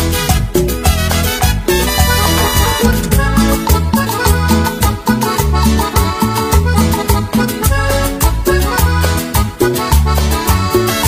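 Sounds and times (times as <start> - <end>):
latin dance band music: 0.0 - 11.0.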